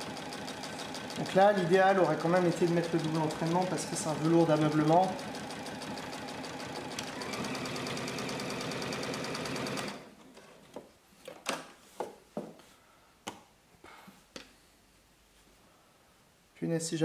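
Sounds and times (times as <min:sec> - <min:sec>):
sewing machine stitching: 0:00.0 - 0:10.2.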